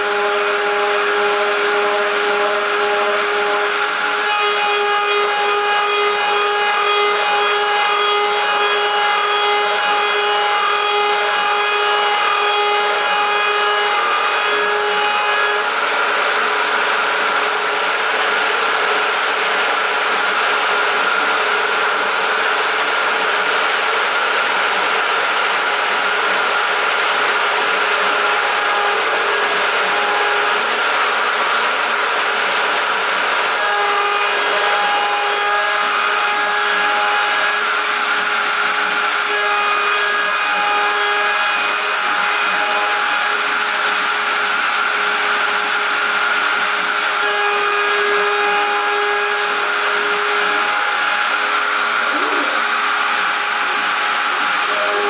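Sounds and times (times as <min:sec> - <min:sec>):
router spindle high whine: 0:00.0 - 0:55.0
hiss of metal cutting: 0:50.3 - 0:55.0.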